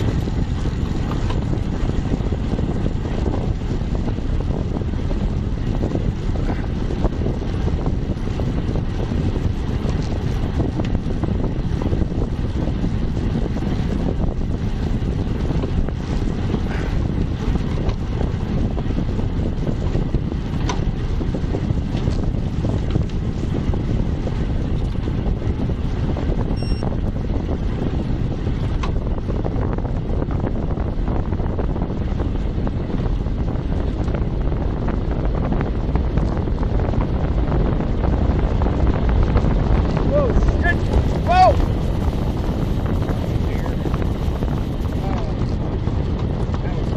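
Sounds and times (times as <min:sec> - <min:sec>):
wind buffeting microphone: 0:00.0 - 0:46.9.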